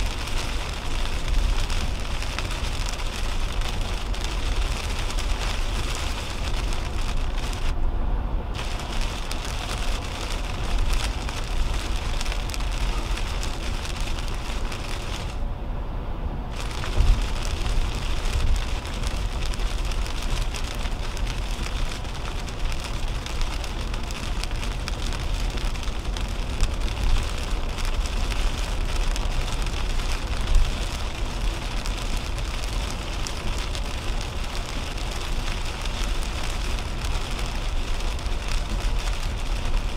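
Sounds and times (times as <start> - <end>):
heavy rain on car windshield: 0.0 - 7.8, 8.5 - 15.4, 16.5 - 39.9
tyre and road rumble: 0.0 - 15.6, 16.2 - 39.9
windshield wiper sweeping: 8.6 - 15.4, 16.6 - 39.9.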